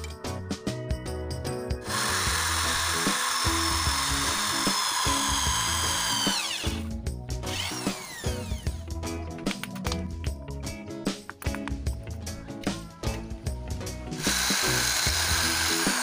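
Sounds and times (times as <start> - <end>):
background music: 0.0 - 16.0
electric drill boring into wood: 1.8 - 8.8, 14.2 - 16.0.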